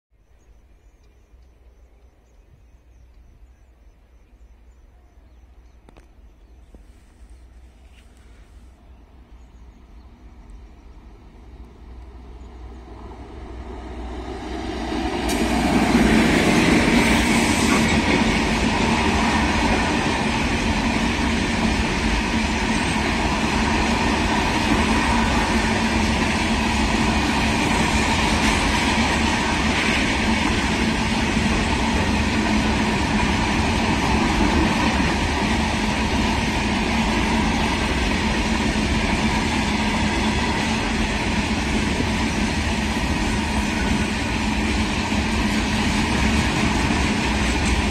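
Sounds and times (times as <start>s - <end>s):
freight train passing: 0.7s - 47.9s
wheels rattling on rails: 11.2s - 47.9s.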